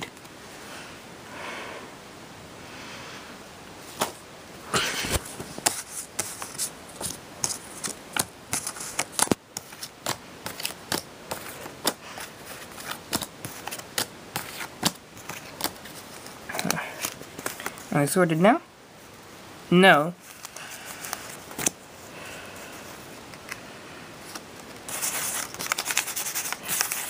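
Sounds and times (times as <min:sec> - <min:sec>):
playing cards being shuffled: 0:05.0 - 0:18.0, 0:20.2 - 0:21.8, 0:24.2 - 0:27.0.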